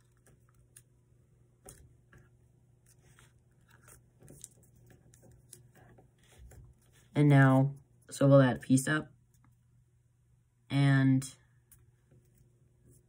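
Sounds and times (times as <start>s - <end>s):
paper rustling and crinkling: 2.8s - 7.2s.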